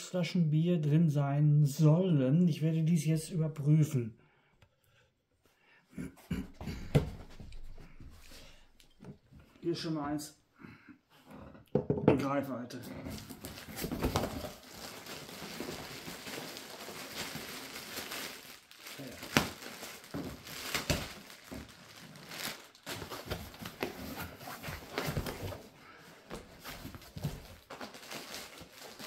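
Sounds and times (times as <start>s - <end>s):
packing material crinkling: 13.1s - 29.0s.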